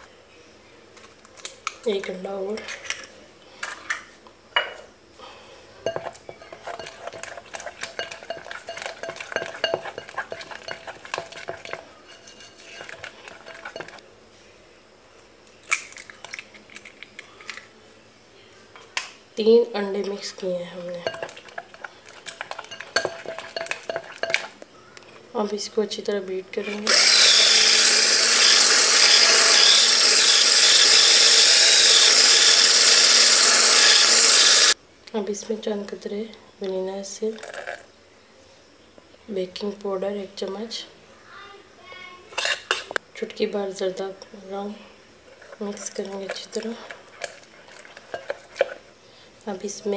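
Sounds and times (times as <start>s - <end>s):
spatula scraping bowl: 5.8s - 14.0s, 19.8s - 25.2s, 26.5s - 34.8s, 42.3s - 43.0s, 45.3s - 49.0s
electric hand blender whisking: 5.9s - 14.0s, 21.0s - 24.5s, 26.6s - 34.8s.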